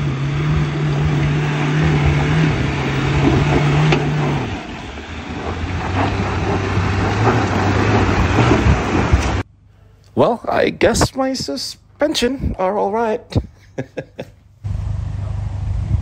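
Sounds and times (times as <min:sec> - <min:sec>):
engine running under load: 0:00.0 - 0:09.5, 0:14.6 - 0:16.0.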